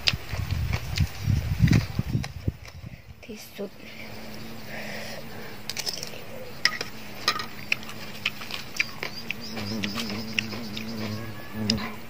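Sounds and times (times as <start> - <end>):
eating clicks and clinks: 5.7 - 11.1.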